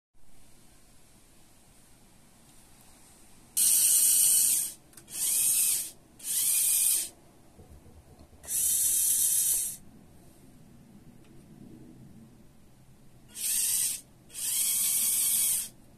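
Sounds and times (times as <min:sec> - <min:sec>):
small electric motor whirring: 0:03.6 - 0:07.1, 0:08.5 - 0:09.8, 0:13.3 - 0:15.8.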